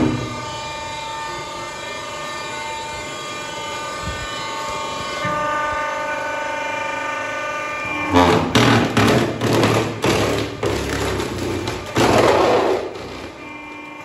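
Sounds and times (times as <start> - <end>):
hydraulic splitter whining hum: 0.0 - 14.0
wood cracking and splitting: 8.1 - 13.4.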